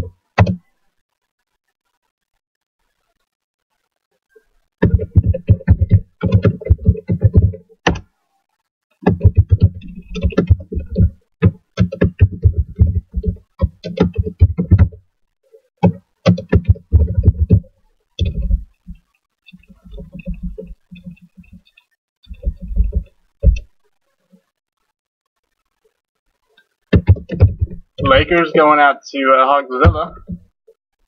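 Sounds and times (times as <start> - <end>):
computer keyboard typing: 4.8 - 8.0, 9.0 - 15.0, 15.8 - 18.7, 22.3 - 23.7, 27.0 - 28.4.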